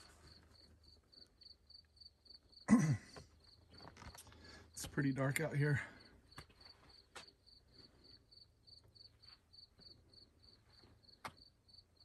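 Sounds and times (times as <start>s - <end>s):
cricket chirping: 0.0s - 2.7s, 6.2s - 12.0s.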